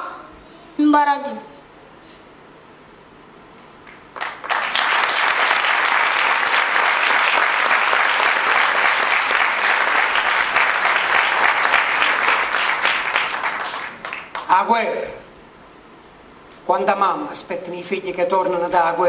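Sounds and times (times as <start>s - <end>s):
audience applauding: 3.8s - 14.5s.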